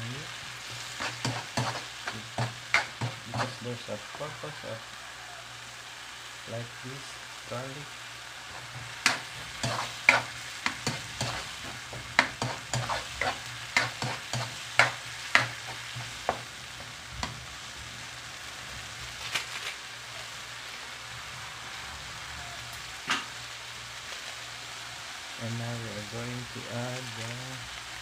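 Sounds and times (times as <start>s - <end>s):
food sizzling in oil: 0.0s - 28.0s
metal spoon scraping wok: 0.5s - 3.7s, 8.5s - 17.4s.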